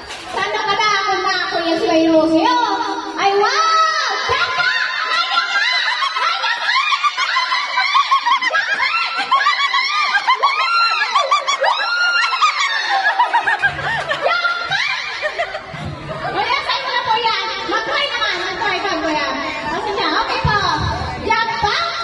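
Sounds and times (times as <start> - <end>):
women and children laughing: 4.0 - 19.9.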